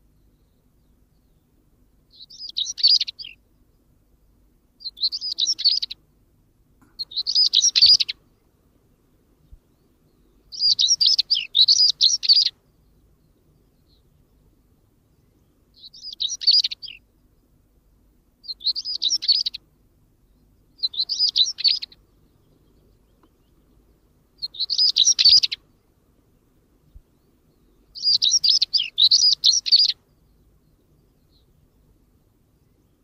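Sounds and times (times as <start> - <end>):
bird singing scratchy warbles: 2.1 - 3.4, 4.8 - 6.0, 6.9 - 8.2, 9.7 - 14.5, 15.2 - 17.0, 18.4 - 19.6, 20.3 - 25.6, 27.0 - 32.0.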